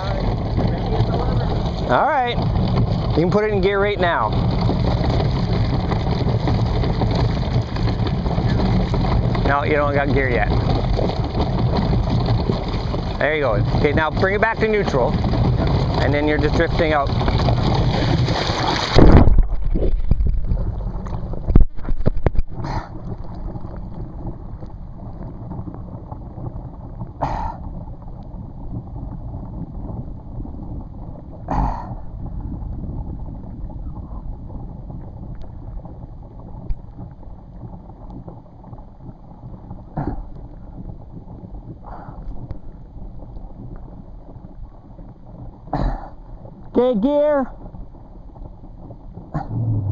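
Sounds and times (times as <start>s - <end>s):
water splashing and sloshing: 0.9s - 25.9s
boat engine idling: 49.4s - 49.9s.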